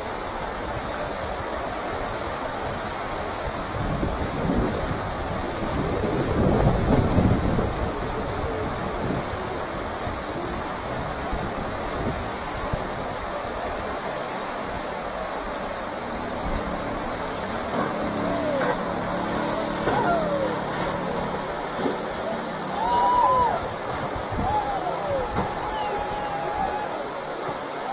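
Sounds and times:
river rapids rushing: 0.0s - 27.9s
wind rumbling on microphone: 0.0s - 27.9s
people calling out: 18.1s - 21.4s, 22.1s - 27.9s.

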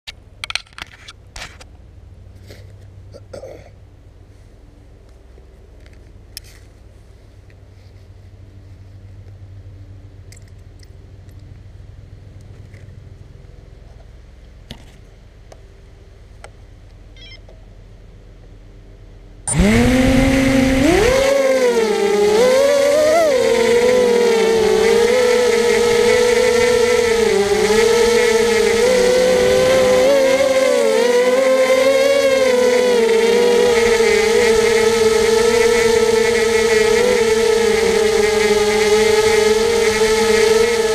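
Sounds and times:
drone motors whining: 19.5s - 40.9s.

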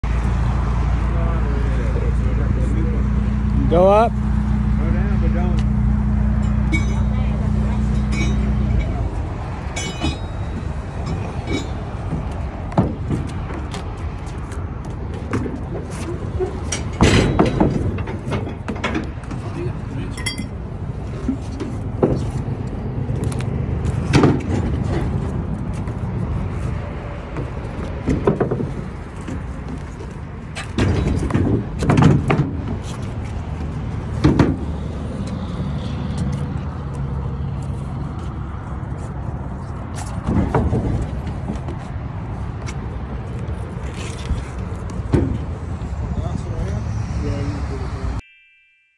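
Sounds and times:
heavy thumps on wooden deck: 12.1s - 13.8s.

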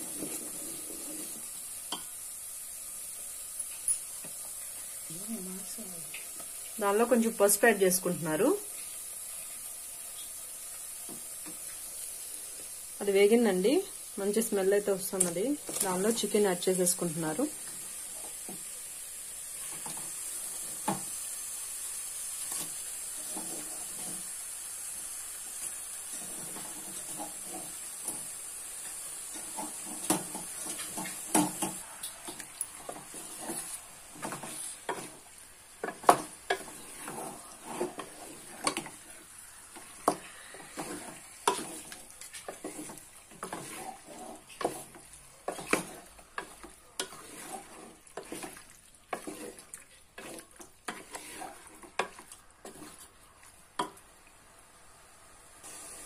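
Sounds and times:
chicken sizzling in oil: 0.0s - 56.0s
spatula scraping metal pot: 35.8s - 39.1s, 39.8s - 53.1s.

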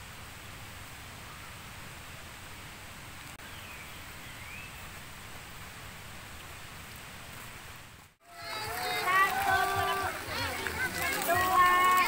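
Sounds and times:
outdoor background noise: 0.0s - 12.0s.

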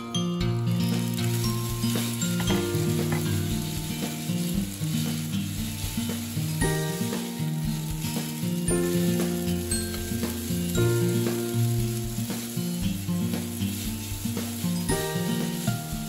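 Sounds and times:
melody of pitched notes: 0.0s - 5.3s, 6.3s - 12.5s
noodles sizzling in frying pan: 0.0s - 16.0s.

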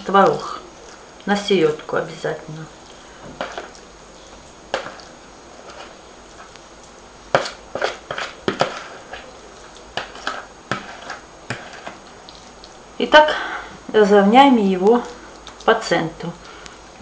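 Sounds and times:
spoon scraping plastic bowl: 3.3s - 3.9s, 4.7s - 6.6s, 7.3s - 12.5s.

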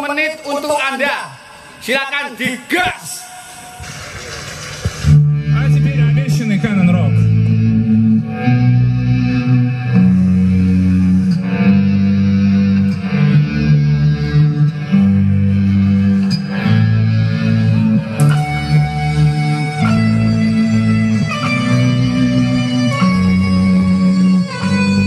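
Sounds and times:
guitar music with heavy bass: 4.8s - 25.0s.

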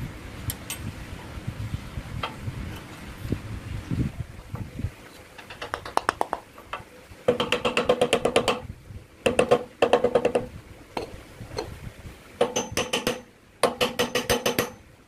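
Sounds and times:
wooden handle knocking on wood: 5.4s - 8.6s, 9.3s - 11.7s, 12.4s - 14.8s.

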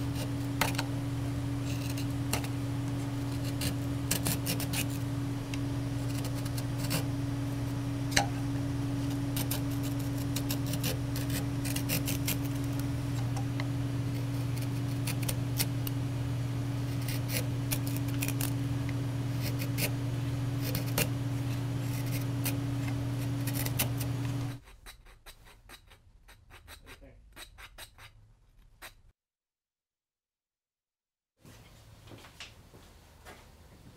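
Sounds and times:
steady low hum: 0.0s - 24.6s
rasp filing wood: 1.6s - 2.6s, 3.2s - 5.1s, 6.0s - 7.2s, 9.0s - 12.8s, 14.1s - 15.9s, 16.8s - 18.6s, 19.3s - 20.0s, 20.6s - 29.0s
hand gouge scraping wood: 3.2s - 5.1s, 6.0s - 7.1s, 9.0s - 12.8s, 14.1s - 15.8s, 16.8s - 18.6s, 19.4s - 20.0s, 20.6s - 29.0s.

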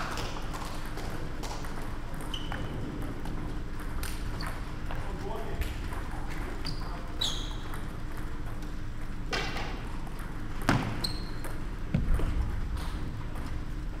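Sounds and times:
heavier thumps: 11.9s - 13.4s.

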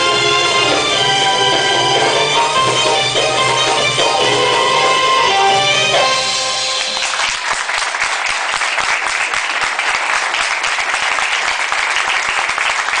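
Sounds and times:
band playing last notes: 0.0s - 7.4s
audience applauding: 0.0s - 13.0s.

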